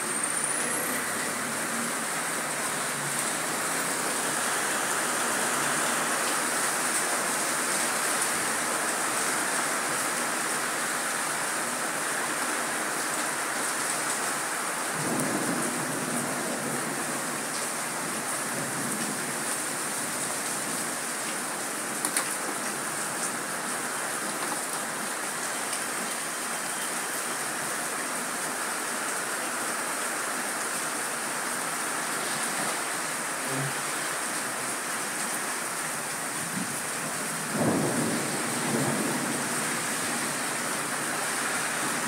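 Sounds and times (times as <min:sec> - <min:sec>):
rain on wet street: 0:00.0 - 0:42.0.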